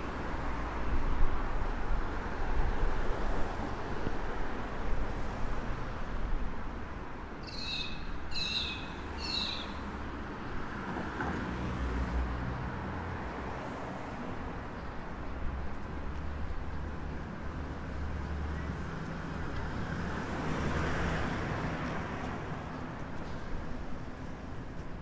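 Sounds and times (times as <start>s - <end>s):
city street traffic: 0.0s - 25.0s
bird short high calls: 7.4s - 9.9s.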